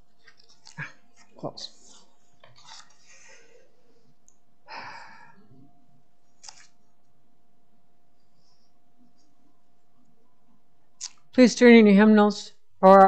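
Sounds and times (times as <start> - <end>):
paper pages rustling: 0.0 - 3.2, 6.3 - 6.8.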